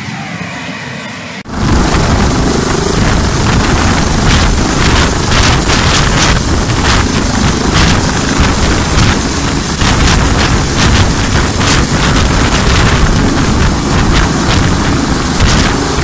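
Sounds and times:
helicopter rotor noise: 0:00.0 - 0:16.0
helicopter turbine whine: 0:00.0 - 0:16.0.

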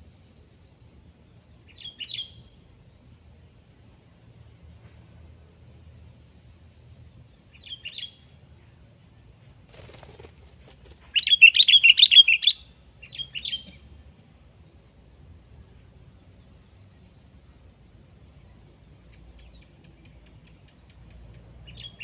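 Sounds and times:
high insect drone: 0:00.0 - 0:22.0.

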